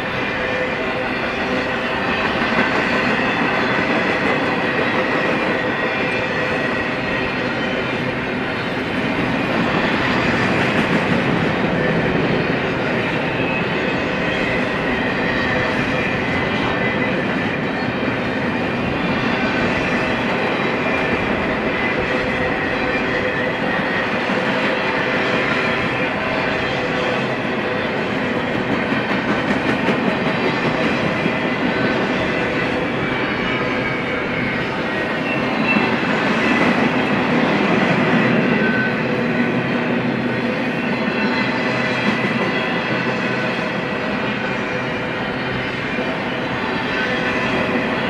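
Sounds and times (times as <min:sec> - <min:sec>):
train wheels rumbling on rails: 0:00.0 - 0:48.0.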